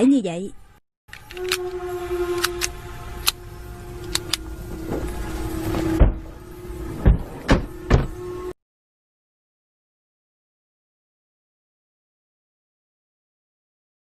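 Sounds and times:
steady low drone: 0:00.6 - 0:08.6
pistol slide racking clicks: 0:01.1 - 0:01.8, 0:04.0 - 0:04.4
heavy thumps: 0:04.8 - 0:08.2.

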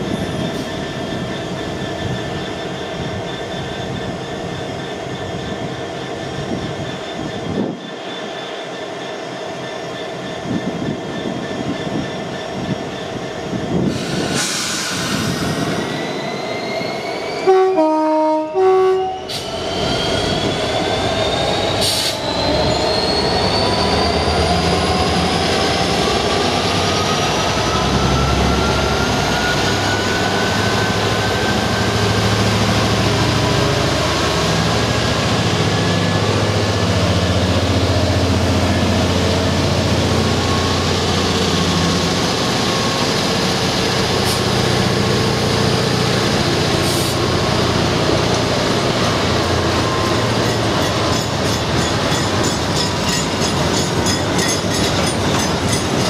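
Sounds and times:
train wheels rolling on rails: 0:00.0 - 0:17.6, 0:19.2 - 0:56.0
faint high squeal: 0:13.8 - 0:17.6, 0:19.0 - 0:25.0
two-tone locomotive horn: 0:17.4 - 0:19.4.

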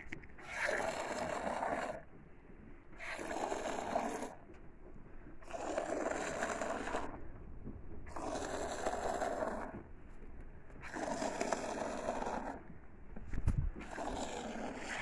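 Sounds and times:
milk squirting into bucket: 0:13.8 - 0:15.0.

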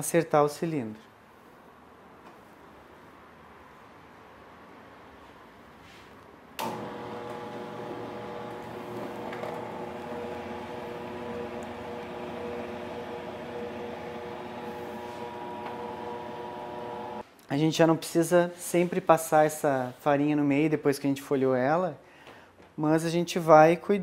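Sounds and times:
dough sheeter motor hum: 0:06.6 - 0:17.2.

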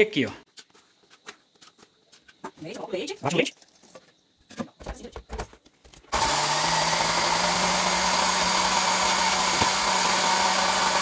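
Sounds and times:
blender motor whirring: 0:06.1 - 0:11.0.

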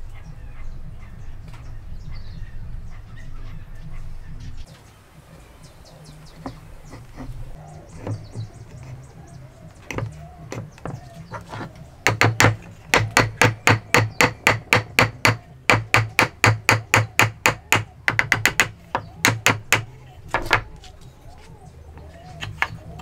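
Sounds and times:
hammer striking wood: 0:09.9 - 0:20.8.

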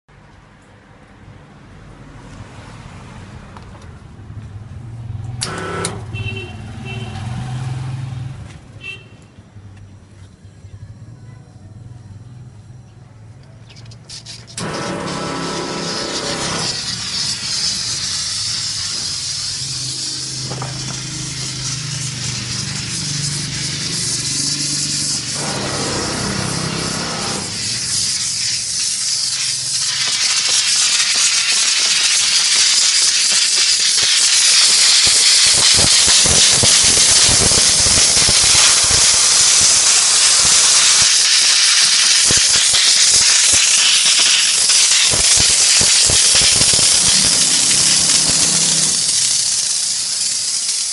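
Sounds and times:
steam hissing: 0:14.1 - 0:50.9.

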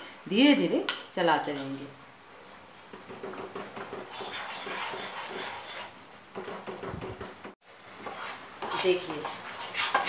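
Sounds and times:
metal spoon scraping a pan: 0:03.8 - 0:10.0.

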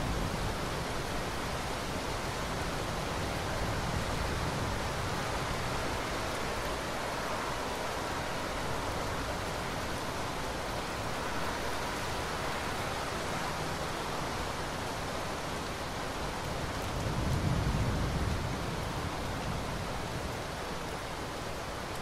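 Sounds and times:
steady rain falling: 0:00.0 - 0:22.0
low rumble of thunder: 0:16.8 - 0:20.4.

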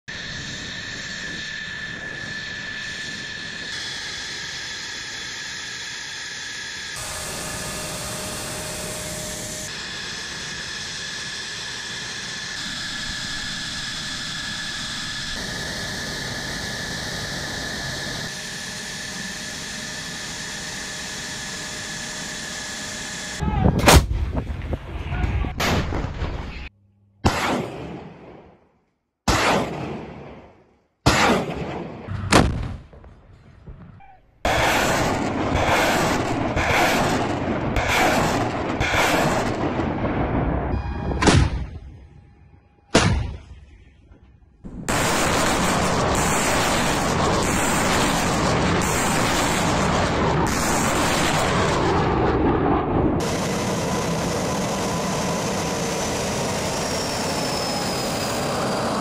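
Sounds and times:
jet engines whining: 0:00.1 - 0:24.9, 0:32.1 - 0:59.0
howitzer firing blasts: 0:23.7 - 0:26.5, 0:27.2 - 0:28.6, 0:29.2 - 0:42.1, 0:42.9 - 0:43.9, 0:44.6 - 0:56.5.

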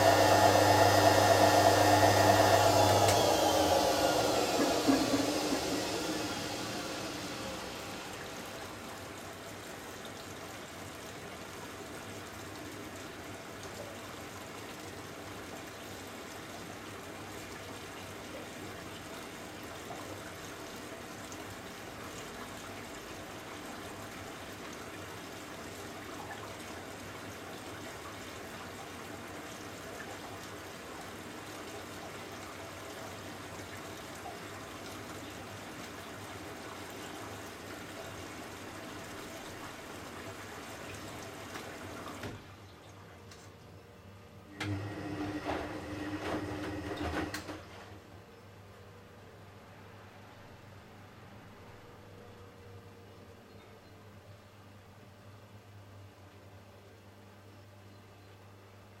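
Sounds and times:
water filling washing machine: 0:00.0 - 0:43.1, 0:44.5 - 0:48.1.

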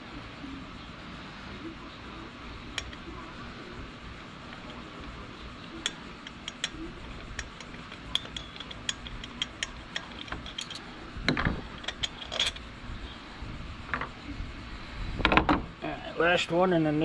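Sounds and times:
ratchet wrench clicking: 0:02.8 - 0:03.1, 0:05.8 - 0:10.8
metal clanks: 0:04.5 - 0:12.7.

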